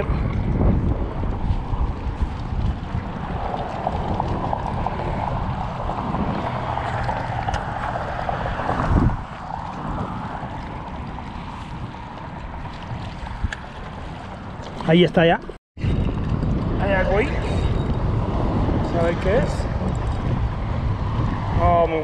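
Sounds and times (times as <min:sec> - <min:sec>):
water lapping against rocks: 0:00.0 - 0:16.7
wind buffeting microphone: 0:00.0 - 0:22.0.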